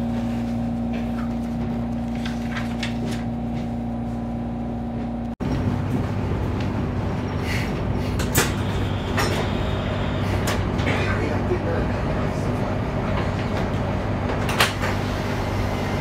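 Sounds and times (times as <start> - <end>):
train cabin hum: 0.0 - 16.0
train rumbling over tracks: 4.8 - 16.0.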